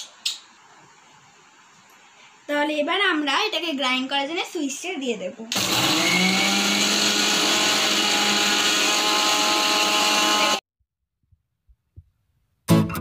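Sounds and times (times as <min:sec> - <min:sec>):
mixer grinder whirring: 0:05.5 - 0:10.6.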